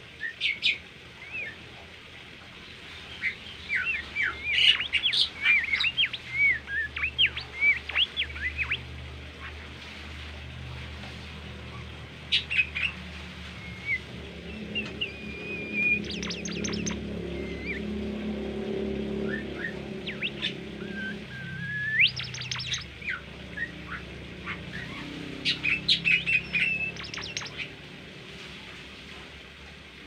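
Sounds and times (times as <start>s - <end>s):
songbird whistling and chirping: 3.2s - 8.8s, 13.6s - 17.9s, 19.2s - 27.7s.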